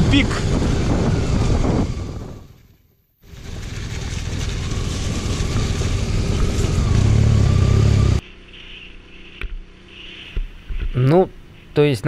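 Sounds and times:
motorcycle engine running: 3.2s - 10.0s.

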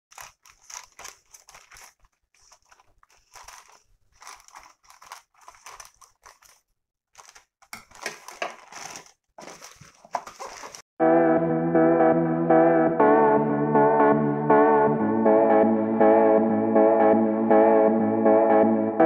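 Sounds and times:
scissors snipping plastic: 0.1s - 10.8s
plastic bag rustling: 0.1s - 10.9s.

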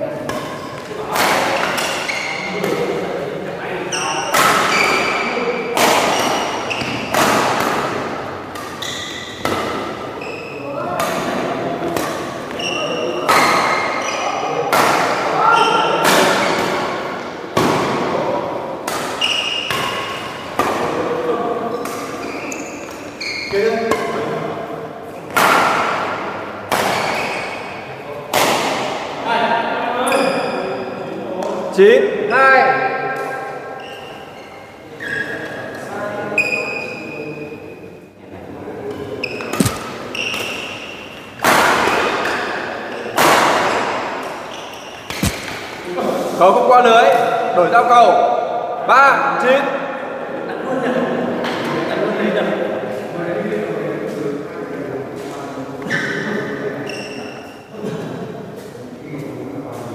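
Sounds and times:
rackets hitting shuttlecock: 0.2s - 3.0s, 3.9s - 21.1s, 21.7s - 23.2s, 25.2s - 29.2s, 38.9s - 45.9s
shoe squeaks: 1.5s - 2.6s, 3.9s - 5.4s, 6.1s - 7.1s, 8.7s - 9.4s, 10.1s - 10.8s, 12.5s - 14.5s, 19.2s - 20.4s, 21.7s - 23.9s, 26.9s - 27.8s, 30.0s - 30.7s, 33.7s - 35.6s, 36.4s - 37.6s, 39.0s - 41.2s, 44.4s - 45.5s, 55.8s - 57.7s.

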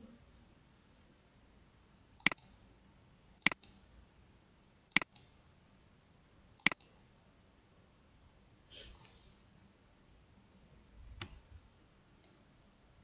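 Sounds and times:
computer mouse clicks: 2.2s - 2.6s, 3.4s - 3.8s, 4.9s - 5.4s, 6.6s - 7.0s.

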